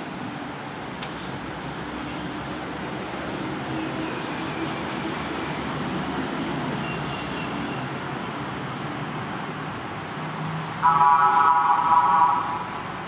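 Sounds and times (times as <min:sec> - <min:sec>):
traffic noise: 0:00.0 - 0:13.0
loud vehicle horn: 0:10.8 - 0:12.8.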